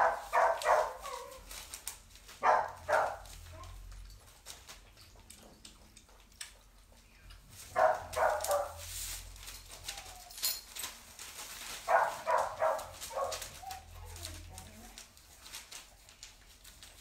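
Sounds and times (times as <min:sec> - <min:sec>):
dog barking: 0:00.0 - 0:01.4, 0:02.4 - 0:03.4, 0:07.7 - 0:08.8, 0:11.8 - 0:13.9.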